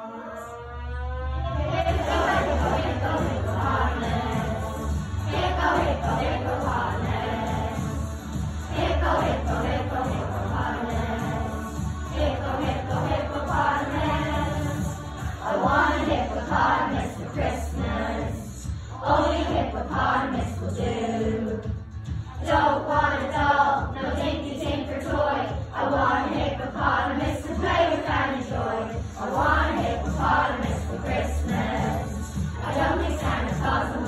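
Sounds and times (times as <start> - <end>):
children's choir singing: 0.0 - 34.0.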